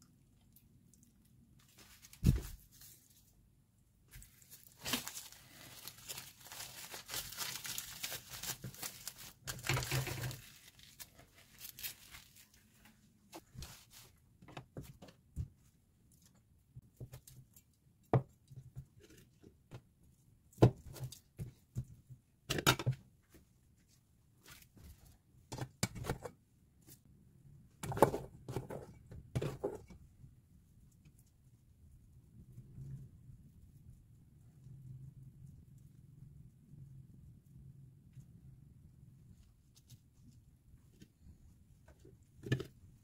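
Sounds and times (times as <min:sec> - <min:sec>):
dried seaweed crinkling: 0:04.1 - 0:12.9.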